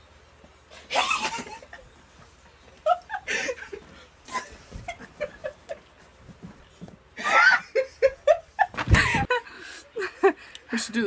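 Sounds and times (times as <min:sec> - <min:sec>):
woman laughing and squealing: 0:00.8 - 0:01.9, 0:07.2 - 0:09.4.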